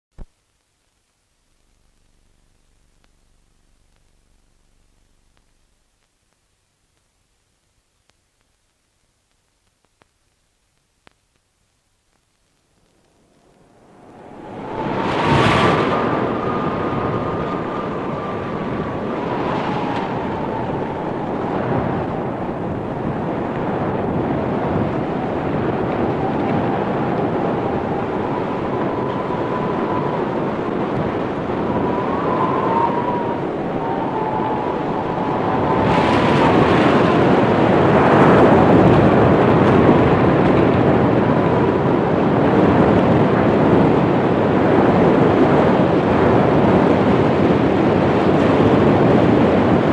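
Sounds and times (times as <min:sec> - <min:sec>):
blizzard wind howling: 0:12.8 - 0:49.9.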